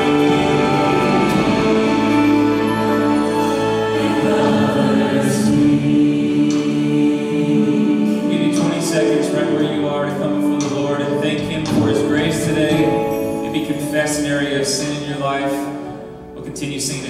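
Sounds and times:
orchestra and choir worship song: 0.0 - 17.0.

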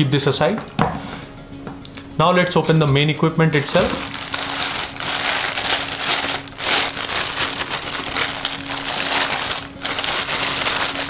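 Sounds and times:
plastic bag crinkling: 2.6 - 11.0.

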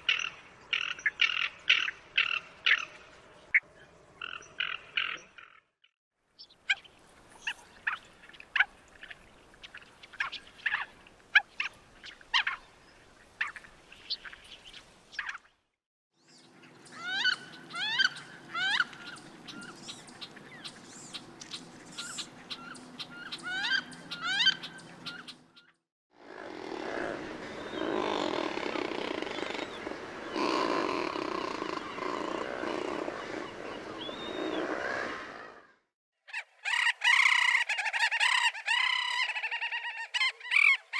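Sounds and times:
seabird growling calls: 26.2 - 35.8.

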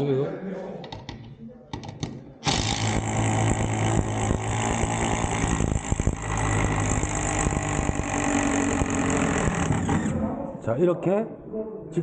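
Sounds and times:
cordless impact tool running: 2.4 - 10.2.

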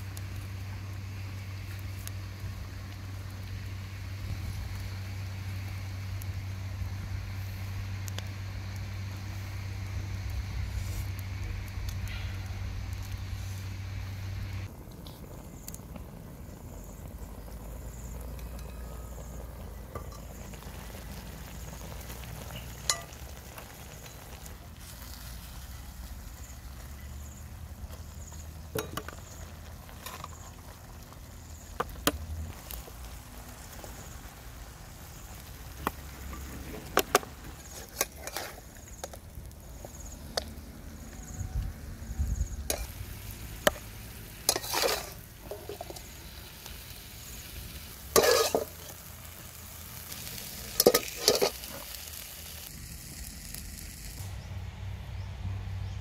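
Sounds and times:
metal spoon scraping steel pan: 37.7 - 38.6, 44.5 - 46.0, 48.1 - 48.9, 50.8 - 51.6.

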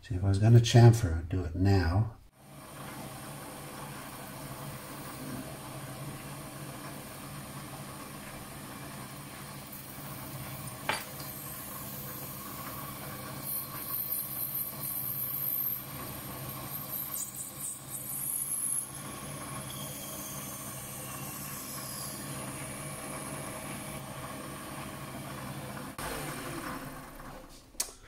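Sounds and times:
lathe motor hum: 2.4 - 27.6
cutting tool hissing: 9.7 - 22.8.

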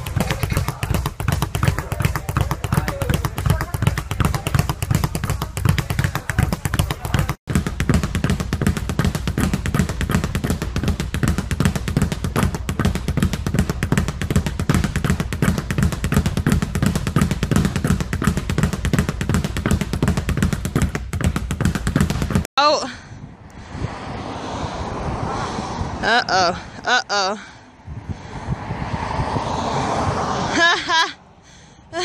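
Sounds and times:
speed bag being punched: 0.0 - 22.5.

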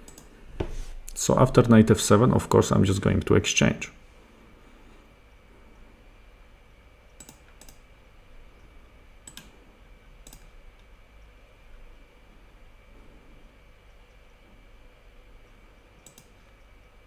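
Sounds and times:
computer clicks: 0.0 - 0.3, 7.1 - 7.8, 9.2 - 9.6, 10.2 - 10.6, 16.0 - 16.6
low steady hum: 0.0 - 17.0.

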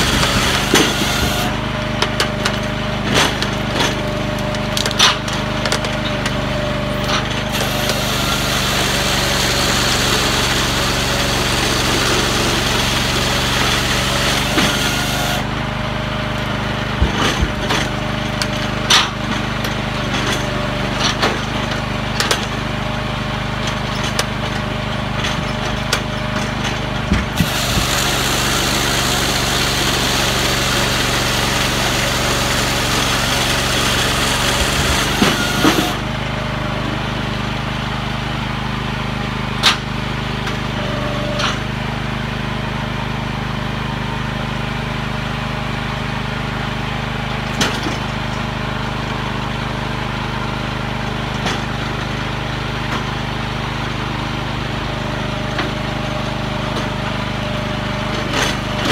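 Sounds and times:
saw chain cutting through log: 0.0 - 36.2
engine running steadily: 0.0 - 58.9.

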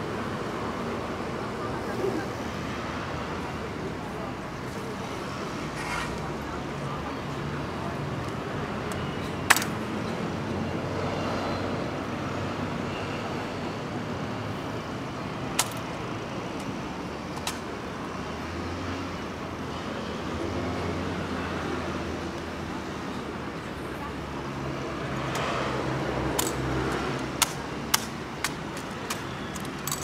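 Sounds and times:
traffic hum: 0.0 - 30.0
rifle clacks: 15.6 - 15.9, 26.4 - 30.0.

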